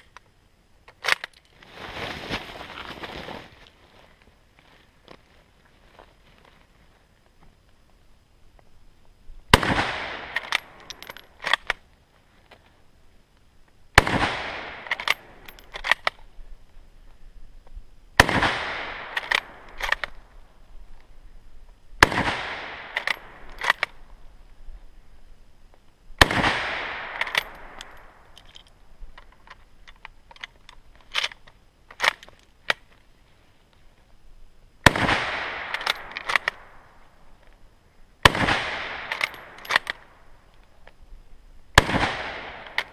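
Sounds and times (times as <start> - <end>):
rifle shots: 9.5 - 10.8, 14.0 - 16.0, 18.2 - 20.2, 22.0 - 24.0, 26.2 - 28.2, 34.8 - 36.8, 38.2 - 40.2, 41.8 - 42.9
rifle bolt clacking: 10.3 - 11.8, 14.8 - 16.2, 19.1 - 20.2, 22.9 - 24.0, 27.1 - 32.9, 35.7 - 36.6, 39.0 - 40.1.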